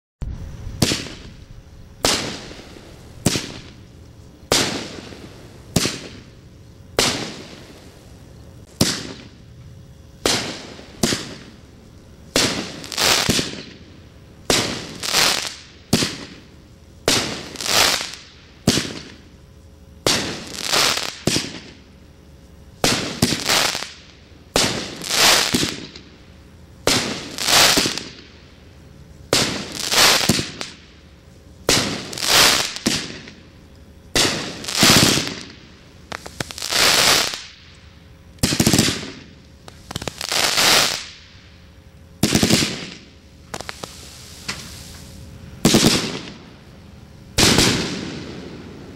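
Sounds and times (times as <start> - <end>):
crackling firework stars: 0.2 - 48.9
firework launch thumps: 42.2 - 45.1.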